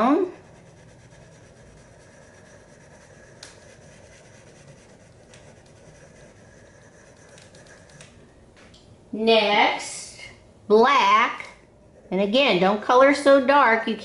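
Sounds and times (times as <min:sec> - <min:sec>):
crayon scribbling on paper: 0:00.0 - 0:08.2.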